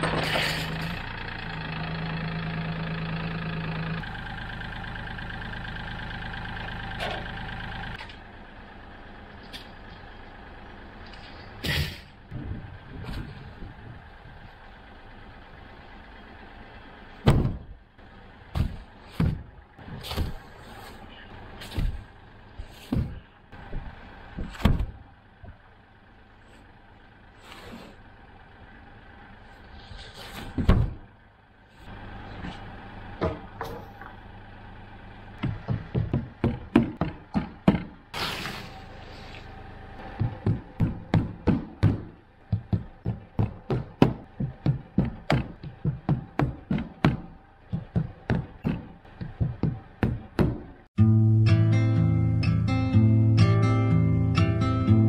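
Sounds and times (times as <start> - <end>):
knocks on wood: 35.4 - 38.0
guitar music: 51.0 - 55.0.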